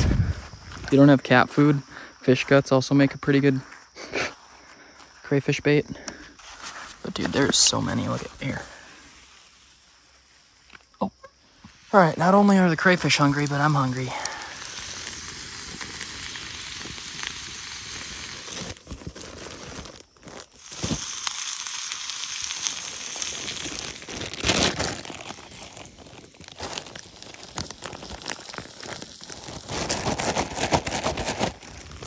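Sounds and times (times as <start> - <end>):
onions sizzling in a pan: 11.4 - 32.0
plastic bag crinkling torn open: 12.9 - 32.0.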